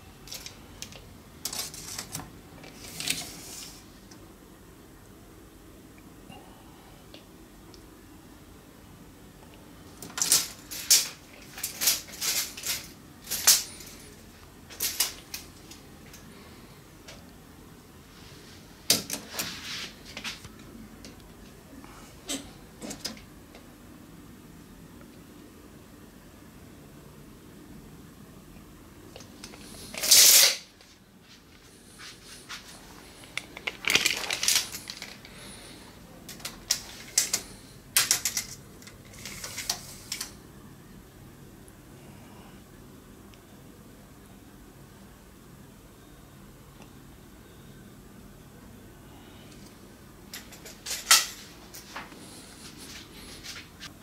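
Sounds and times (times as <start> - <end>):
tape measure scraping and rattling: 0.3 - 3.8, 10.0 - 14.1, 14.7 - 15.8, 29.4 - 30.7, 33.3 - 35.6, 36.3 - 40.4, 50.4 - 53.7
tape measure blade clicking: 30.0 - 30.6.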